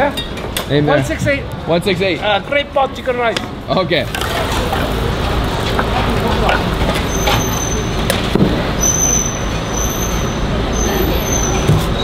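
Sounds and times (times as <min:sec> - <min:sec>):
road traffic noise: 0:00.0 - 0:12.0.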